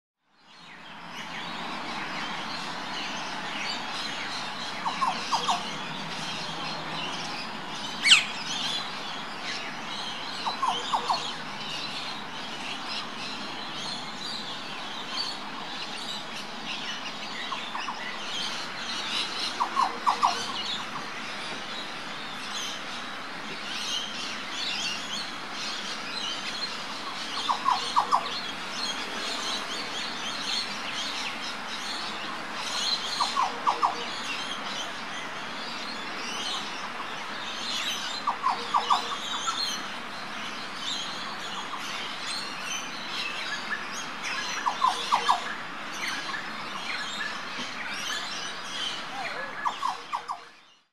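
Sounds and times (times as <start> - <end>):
birds chirping: 0.4 - 50.9
oriole calling: 4.8 - 5.8, 10.4 - 11.5, 19.5 - 21.0.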